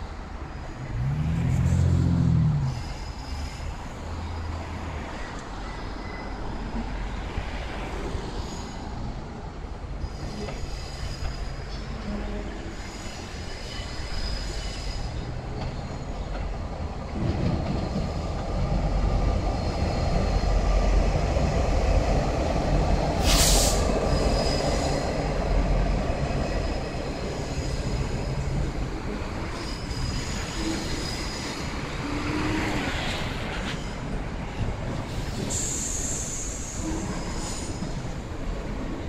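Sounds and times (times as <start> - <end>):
diesel locomotive engine rumble: 0.0 - 39.0
high wheel squeal: 0.5 - 6.6, 8.0 - 9.2, 9.9 - 16.4, 23.2 - 25.6, 26.2 - 38.2
short loud hiss: 23.2 - 23.8.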